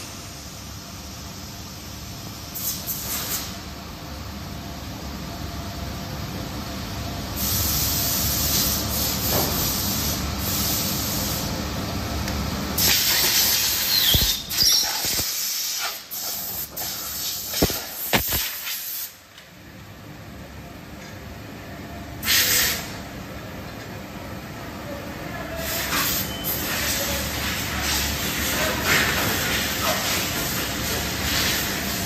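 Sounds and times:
compressed air hissing: 2.5 - 3.6, 7.4 - 11.5, 12.8 - 19.2, 22.2 - 23.0.

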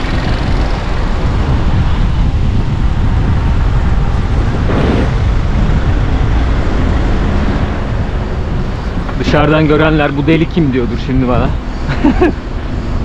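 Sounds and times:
city traffic: 0.0 - 13.0
wind rumbling on microphone: 0.0 - 13.0
brief whoosh: 4.6 - 5.4.

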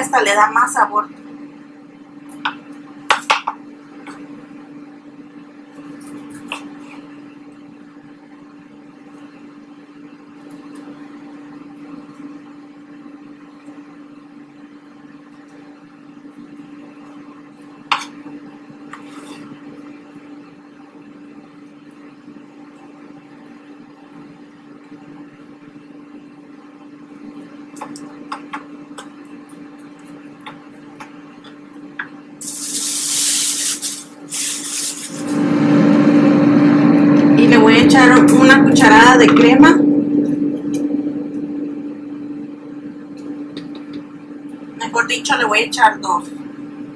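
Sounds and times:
kitchen appliance humming: 27.2 - 46.9.

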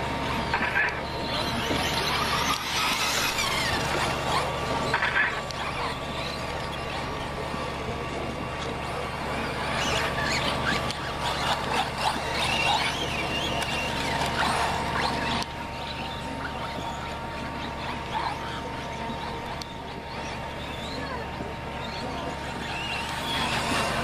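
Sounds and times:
rc car motors whining: 0.0 - 24.0
steady low hum: 0.0 - 24.0.

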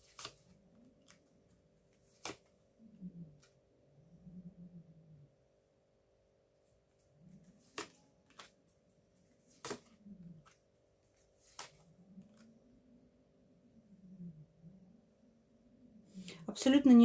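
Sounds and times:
cards clicking and tapping: 0.0 - 1.3, 2.0 - 2.5, 7.6 - 8.6, 9.4 - 10.6, 11.4 - 12.4.

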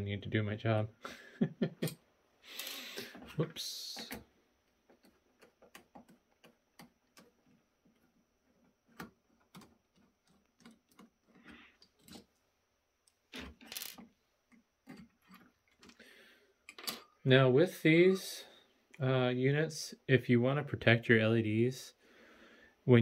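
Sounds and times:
wires rustling: 1.8 - 16.0.

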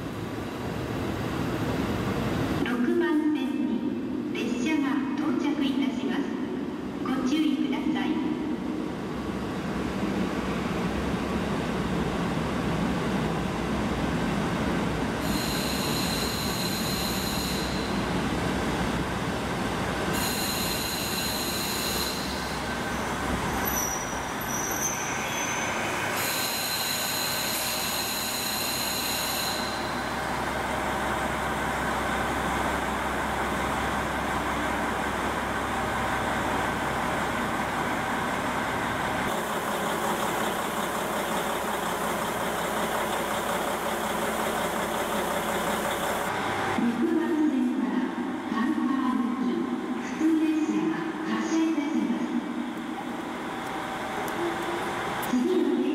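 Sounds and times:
diesel railcar rolling and braking: 0.0 - 2.7, 8.7 - 47.0, 52.3 - 55.7
high squealing wheels and brakes: 15.2 - 18.0, 20.2 - 30.2
diesel engine idling: 30.2 - 46.8.

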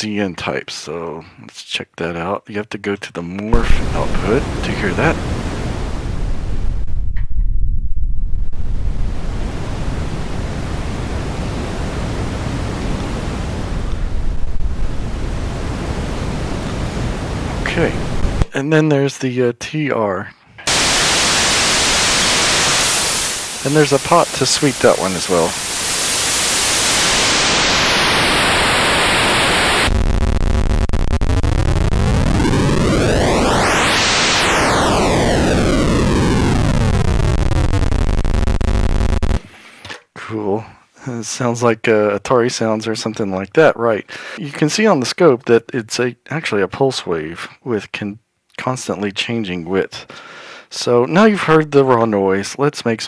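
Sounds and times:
steady electronic hiss: 3.6 - 6.9, 8.7 - 18.8, 20.7 - 39.5.

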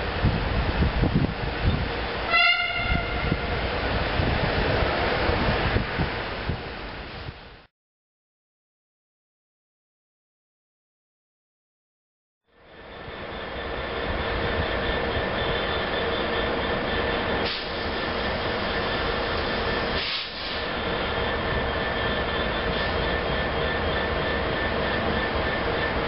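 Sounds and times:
diesel locomotive engine running hard: 0.0 - 7.3, 12.5 - 26.0
steady locomotive whine: 0.0 - 7.6, 12.5 - 26.0.

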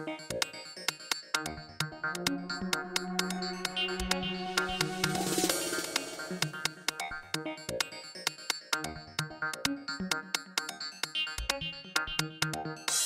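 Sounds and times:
drum-machine beat: 0.1 - 7.9
synthesizer notes: 1.8 - 7.3.

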